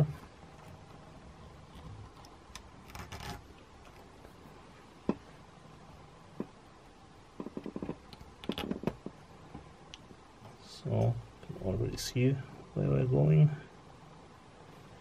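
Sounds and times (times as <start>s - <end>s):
wire rubbing and scraping on hose: 0.0s - 4.0s.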